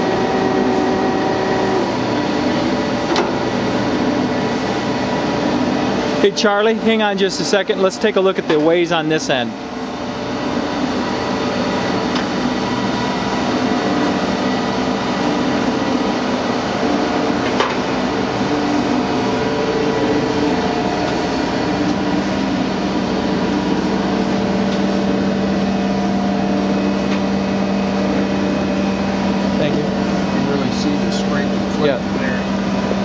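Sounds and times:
surface grinder humming: 0:00.0 - 0:08.7.

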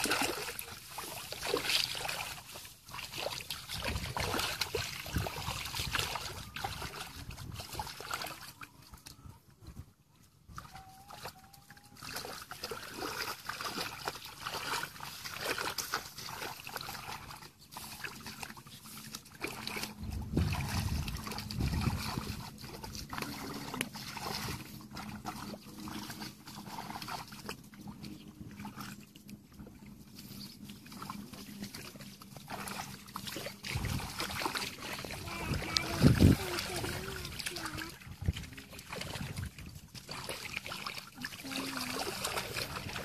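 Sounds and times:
muddy water sloshing and splashing: 0:00.0 - 0:43.0.

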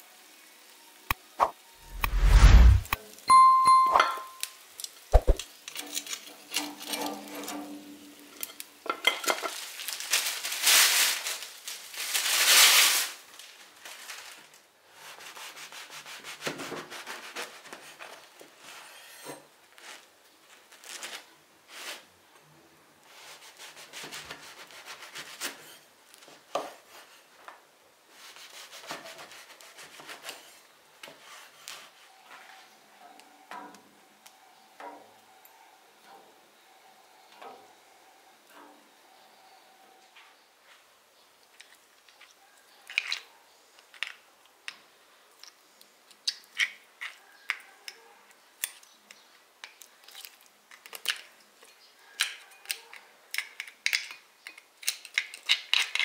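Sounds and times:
knife sawing through bread: 0:15.0 - 0:18.1, 0:23.2 - 0:25.6, 0:28.2 - 0:30.4.

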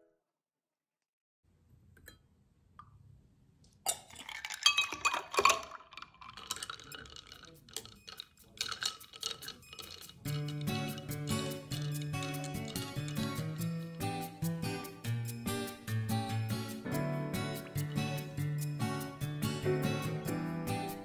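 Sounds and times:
ice and spoon clinking in glass: 0:03.9 - 0:14.0.

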